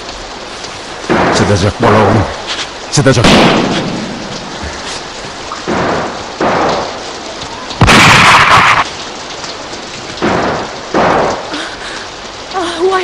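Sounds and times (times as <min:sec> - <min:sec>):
steady rain hiss: 0:00.0 - 0:13.0
thunder cracks: 0:03.2 - 0:04.6, 0:07.8 - 0:09.2, 0:10.2 - 0:11.5.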